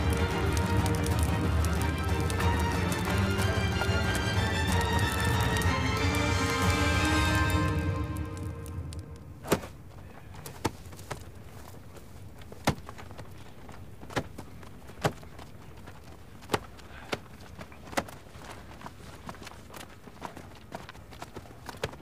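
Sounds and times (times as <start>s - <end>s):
music: 0.0s - 9.4s.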